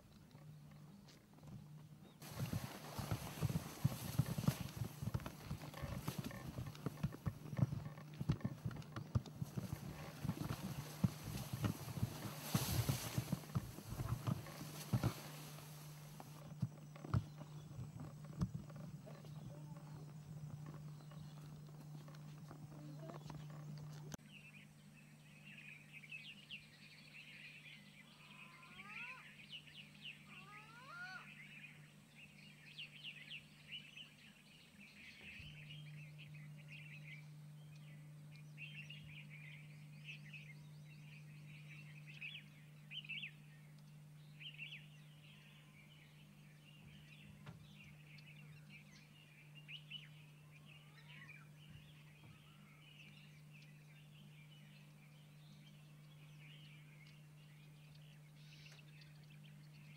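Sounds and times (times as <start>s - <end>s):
birds chirping and twittering: 0.0s - 59.9s
sliding whistled bird calls: 9.5s - 16.4s.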